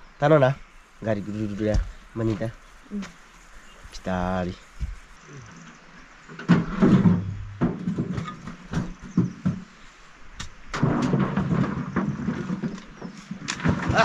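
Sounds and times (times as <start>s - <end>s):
heavy thuds and knocks: 1.5s - 2.5s, 4.8s - 5.1s, 6.4s - 9.8s, 10.4s - 14.0s.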